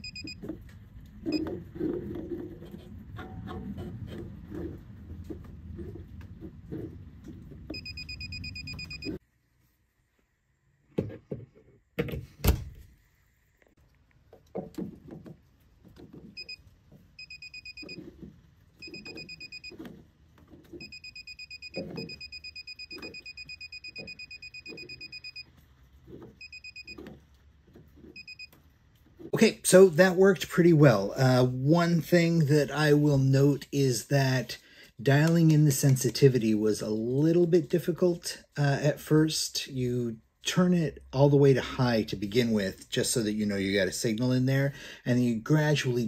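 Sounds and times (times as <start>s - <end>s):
fast-pulsed high beeps: 0.0s - 0.4s, 7.8s - 9.2s, 20.8s - 25.4s, 26.4s - 27.0s.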